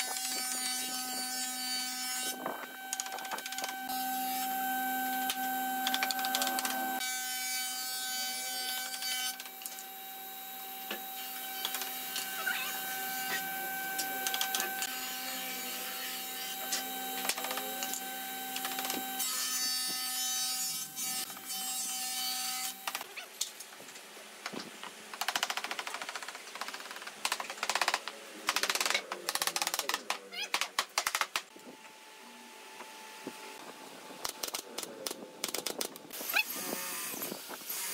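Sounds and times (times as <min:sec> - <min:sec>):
steady machine hum: 0:00.0 - 0:07.0, 0:09.3 - 0:19.2.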